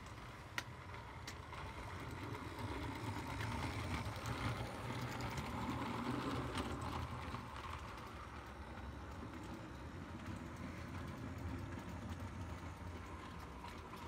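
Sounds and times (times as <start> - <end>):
toy train motor running: 0.1 - 14.0.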